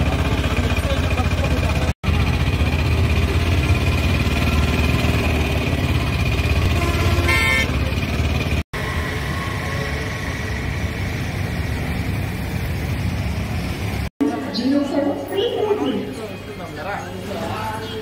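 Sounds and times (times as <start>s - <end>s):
vehicle running rumble: 0.0s - 14.1s
short horn toot: 6.7s - 7.7s.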